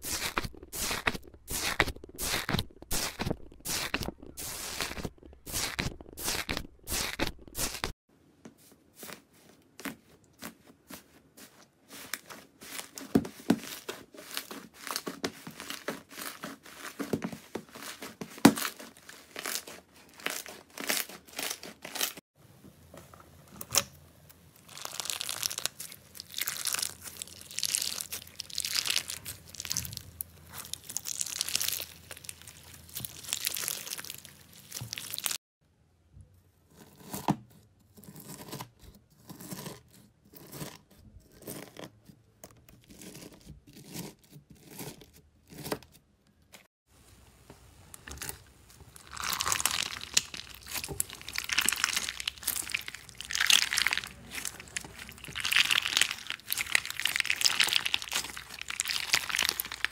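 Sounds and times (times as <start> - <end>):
bead slime crackling and crunching: 0.0 - 8.0, 11.9 - 22.2, 24.6 - 35.4, 48.0 - 59.9.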